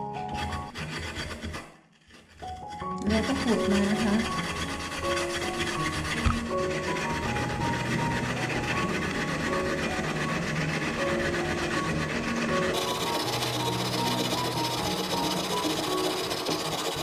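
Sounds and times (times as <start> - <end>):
light background music: 0.0 - 0.7, 2.4 - 17.0
potato grating rasp: 0.1 - 17.0.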